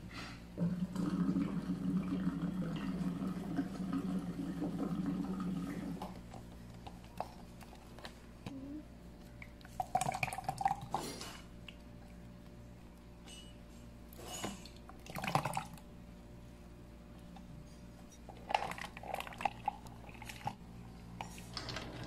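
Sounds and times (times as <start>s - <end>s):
water pouring into plastic cup: 0.6s - 6.2s, 15.0s - 15.9s.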